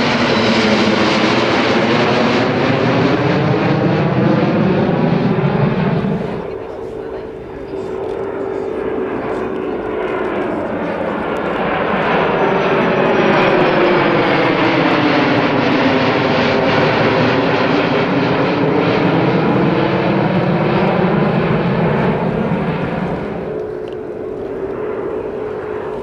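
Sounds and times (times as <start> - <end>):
jet engines roaring overhead: 0.0 - 26.0.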